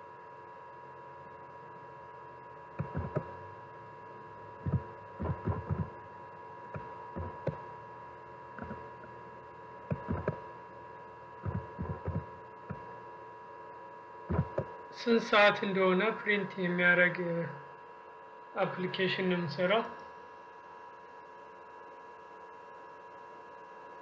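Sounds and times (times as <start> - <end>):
steady electrical hum: 0.0 - 24.0
computer keyboard typing: 2.8 - 3.2, 4.7 - 5.9, 9.9 - 10.4, 11.4 - 12.2.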